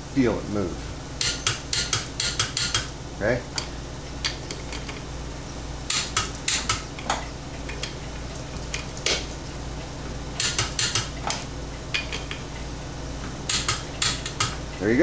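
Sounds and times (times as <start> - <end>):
torque wrench clicking: 1.2 - 2.9, 10.4 - 11.1, 13.5 - 14.6.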